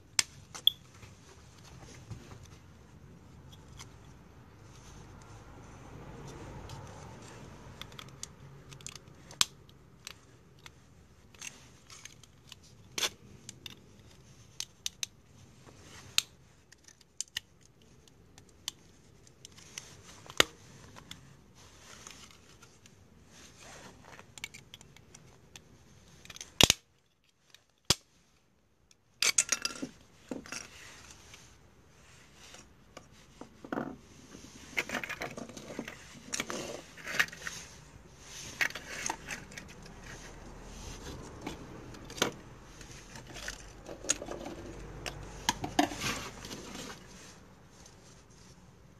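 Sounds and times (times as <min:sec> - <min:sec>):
plastic parts clicking and clattering: 0:07.8 - 0:21.3, 0:24.0 - 0:28.1.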